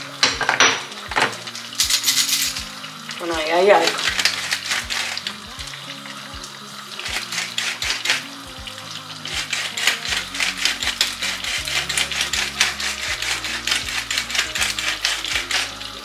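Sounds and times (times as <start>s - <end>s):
pepper mill grinding clicks: 1.8s - 2.6s, 9.3s - 15.8s.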